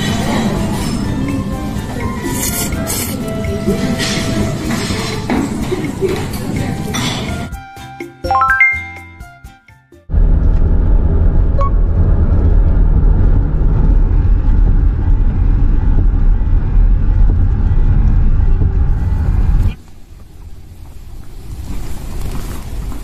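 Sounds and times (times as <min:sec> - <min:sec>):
low rumble of moving vehicle: 0:10.1 - 0:23.0.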